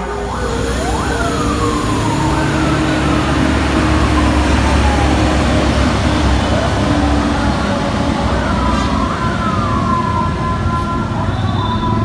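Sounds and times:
bus diesel engine rumbling: 0:00.0 - 0:12.0
siren-style wail: 0:00.0 - 0:12.0.

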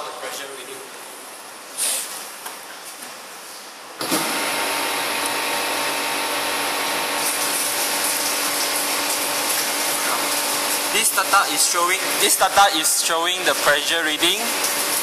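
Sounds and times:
water pump humming: 0:04.0 - 0:15.0.

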